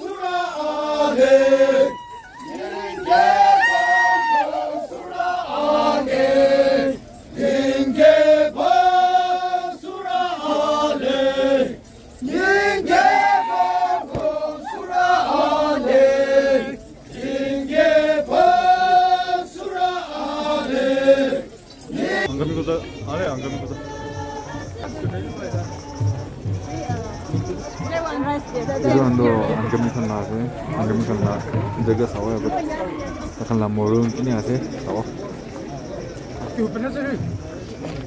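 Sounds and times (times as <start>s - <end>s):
men chanting together: 0.0s - 25.4s.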